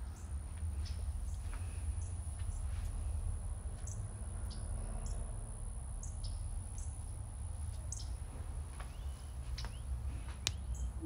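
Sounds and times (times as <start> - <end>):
small birds chirping: 0.0 - 11.0
steady low rumble: 0.0 - 11.0.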